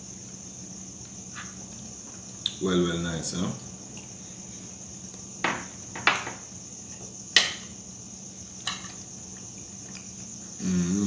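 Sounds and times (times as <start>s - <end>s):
steady high-pitched whine: 0.0s - 11.0s.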